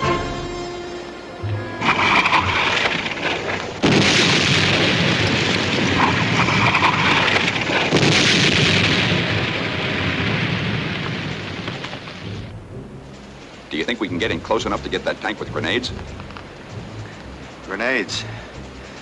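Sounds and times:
battle explosions: 1.8 - 12.7.

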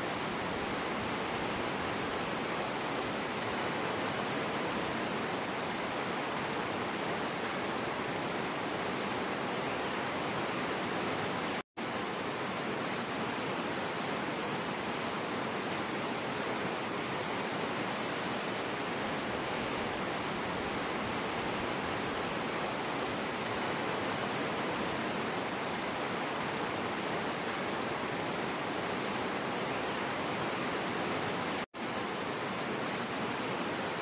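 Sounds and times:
river rapids rushing: 12.2 - 34.0.

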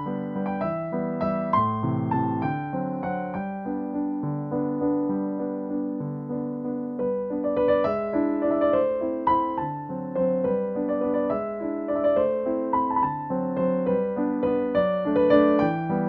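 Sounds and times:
soft piano music: 0.0 - 16.0.

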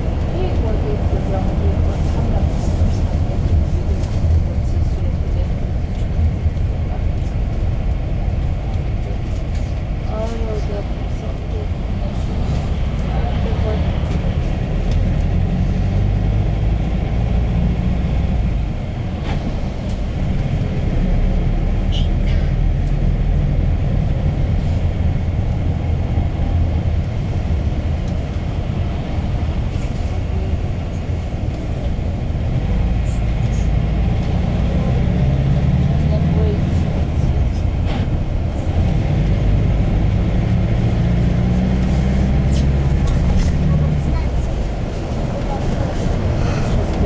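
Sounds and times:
minibus engine and road rumble: 0.0 - 47.0.

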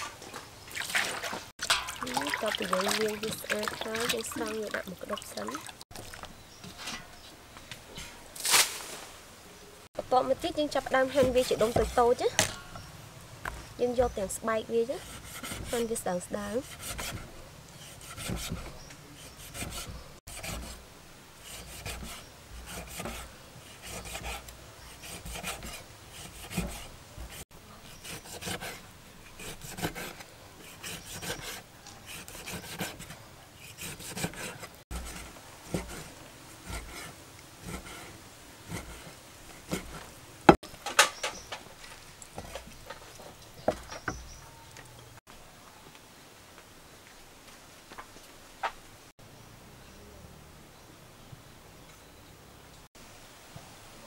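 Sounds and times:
cleaver chopping on wooden board: 18.1 - 18.8.

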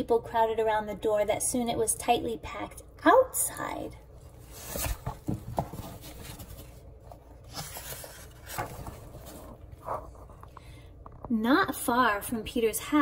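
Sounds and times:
book page rustling: 4.4 - 10.6.

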